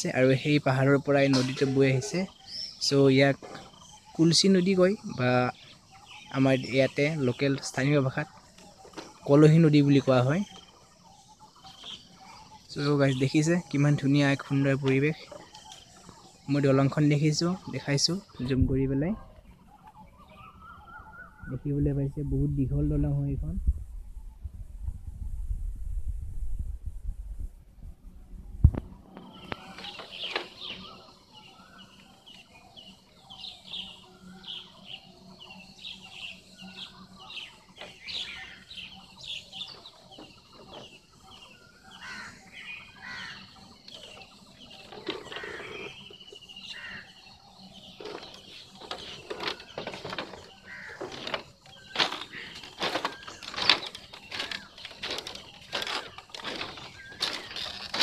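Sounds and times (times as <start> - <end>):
small birds chirping: 0.0 - 25.2, 28.3 - 58.0
footsteps on bamboo slats: 3.2 - 4.7, 11.6 - 18.1, 37.2 - 58.0.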